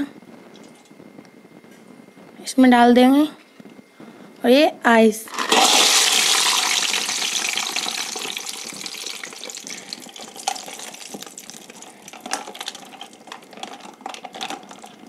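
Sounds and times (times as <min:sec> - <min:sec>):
ice clinking against steel: 0:05.3 - 0:15.0
ice cubes clattering in a steel bowl: 0:05.3 - 0:15.0.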